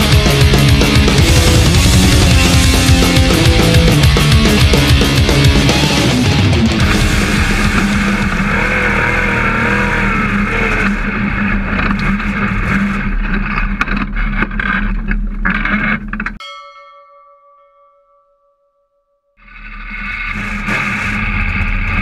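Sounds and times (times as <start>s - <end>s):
race car engine running hard: 0.0s - 14.0s
rattling and clattering: 10.9s - 16.4s
ringing tone: 16.4s - 19.6s.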